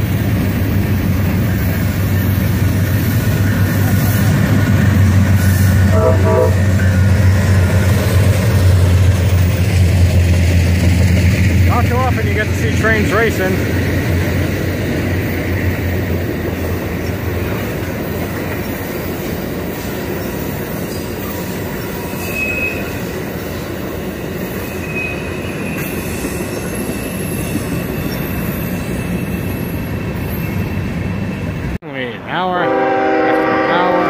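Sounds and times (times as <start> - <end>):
train wheels rumbling on rail: 0.0 - 31.8
freight train running: 0.0 - 34.0
high wheel squeal: 18.7 - 23.2, 24.2 - 31.6.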